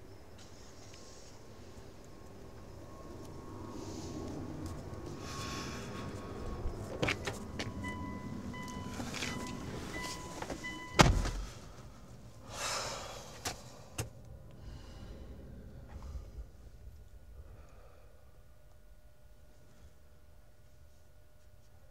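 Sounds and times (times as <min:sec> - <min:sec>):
steady warning tone: 0:06.0 - 0:12.5
car door clicks: 0:10.4 - 0:11.5
car door slamming: 0:10.4 - 0:11.6.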